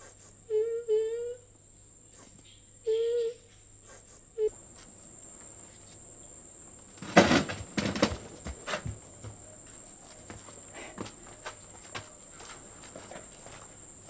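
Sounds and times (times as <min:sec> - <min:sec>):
high insect trill: 0:00.0 - 0:14.0
loud knocks and scuffs: 0:06.9 - 0:13.8.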